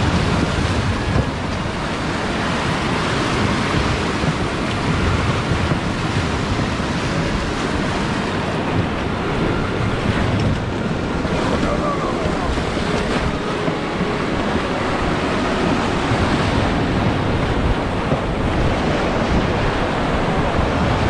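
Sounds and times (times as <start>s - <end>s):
whitewater rapids roaring: 0.0s - 21.0s
wind on microphone: 0.0s - 21.0s.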